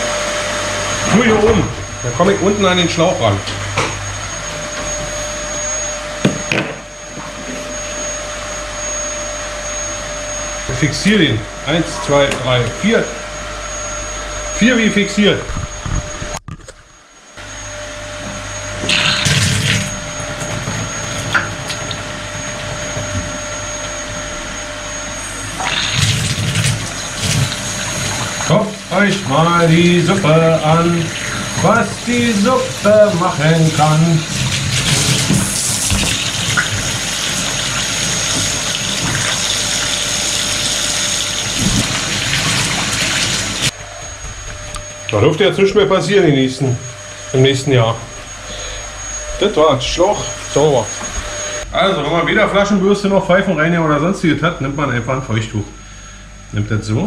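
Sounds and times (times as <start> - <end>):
water running through hose into bathtub: 18.8 - 23.1, 25.3 - 43.8.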